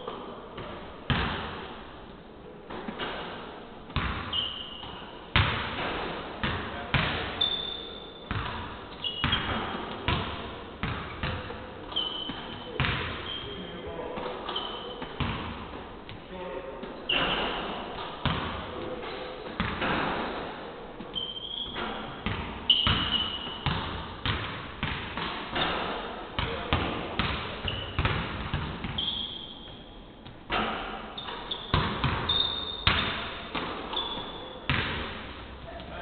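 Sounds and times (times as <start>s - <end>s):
basketballs bouncing on hardwood: 3.9s - 7.4s, 8.3s - 13.3s, 14.2s - 16.2s, 17.4s - 18.8s, 19.5s - 20.2s, 21.0s - 29.0s, 30.2s - 36.0s
sneakers squeaking on floor: 4.0s - 36.0s.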